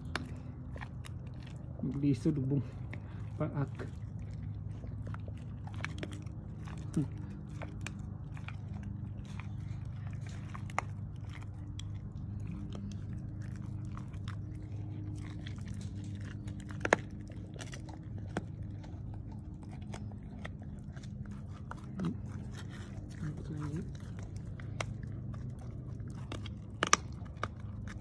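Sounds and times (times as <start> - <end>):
dog gnawing a chew bone: 0.0 - 28.0
low hum: 0.0 - 28.0.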